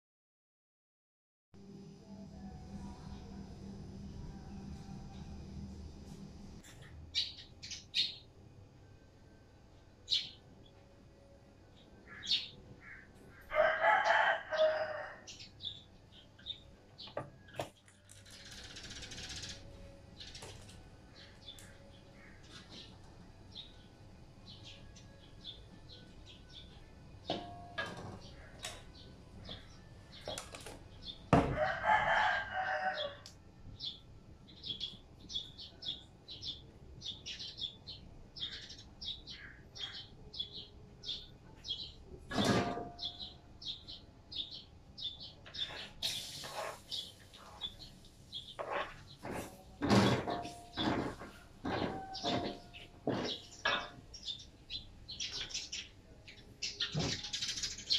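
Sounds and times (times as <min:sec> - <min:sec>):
small birds chirping: 0:33.8 - 0:42.0, 0:43.0 - 0:49.7, 0:50.7 - 0:57.9.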